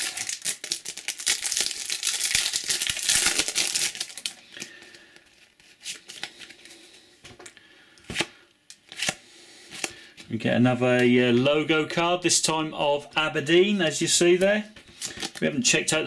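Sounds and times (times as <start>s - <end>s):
foil pack crinkling and tearing: 0.0s - 6.7s
cards rustling and clicking: 1.7s - 10.3s, 14.3s - 15.5s.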